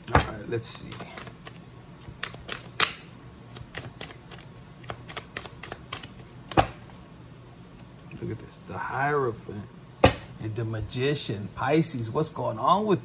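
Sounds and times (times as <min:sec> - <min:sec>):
cards being shuffled by hand: 0:00.0 - 0:07.0.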